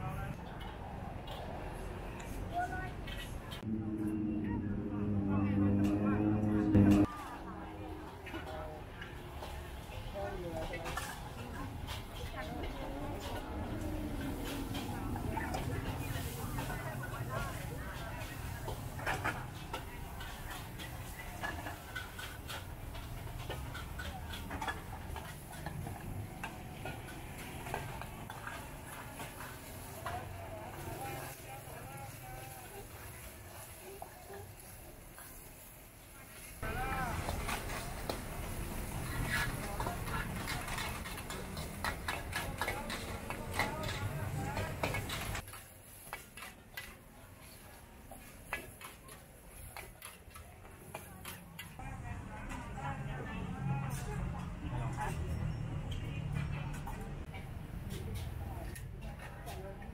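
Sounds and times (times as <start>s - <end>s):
utensil scraping in a wok: 3.2s - 51.8s
low steady rumble: 3.6s - 7.1s
metal utensils clinking against bowl: 37.2s - 51.8s.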